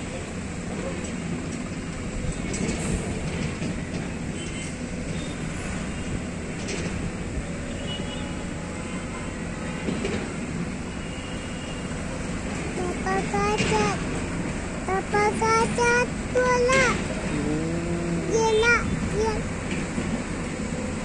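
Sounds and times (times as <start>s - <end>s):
diesel truck engine running: 11.9s - 21.0s.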